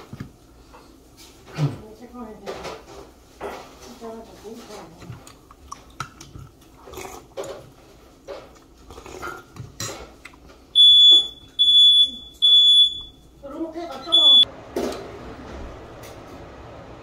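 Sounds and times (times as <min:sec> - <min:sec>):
soft chewing: 0:04.7 - 0:10.7
smoke alarm beeping: 0:10.8 - 0:13.4, 0:14.0 - 0:14.5.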